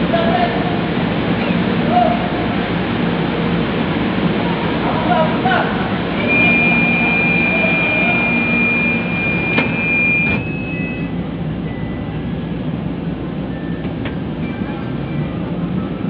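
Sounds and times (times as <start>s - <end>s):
train car low rumble: 0.0s - 16.0s
long high warning beep: 6.2s - 12.2s
train doors knocking shut: 9.5s - 10.5s.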